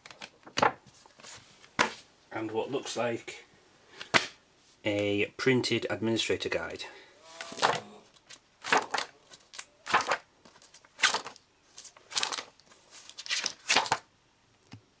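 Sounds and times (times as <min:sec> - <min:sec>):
paper pages turning: 0:07.4 - 0:14.0.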